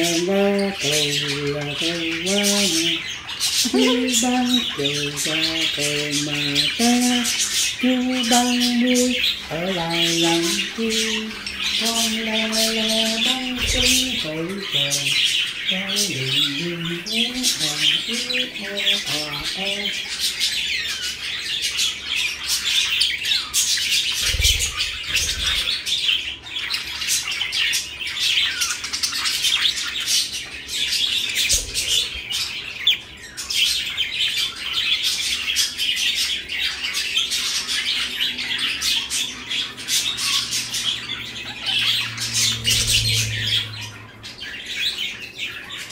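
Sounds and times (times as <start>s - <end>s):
budgerigars chirping: 0.0s - 45.9s.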